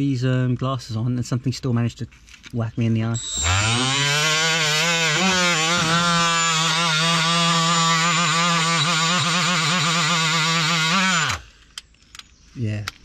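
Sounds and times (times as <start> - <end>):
die grinder whining: 3.2 - 11.6.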